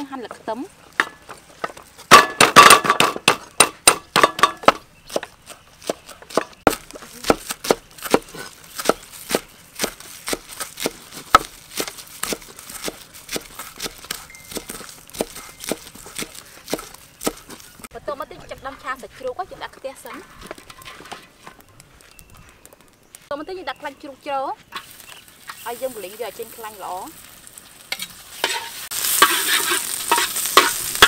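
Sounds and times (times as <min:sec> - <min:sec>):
cleaver chopping on wooden block: 0:02.1 - 0:17.6.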